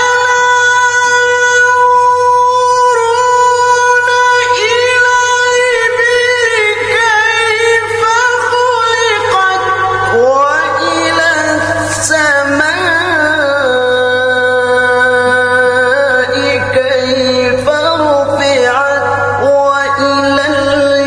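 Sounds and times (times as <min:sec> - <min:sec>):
man reciting melodically: 0:00.0 - 0:21.0.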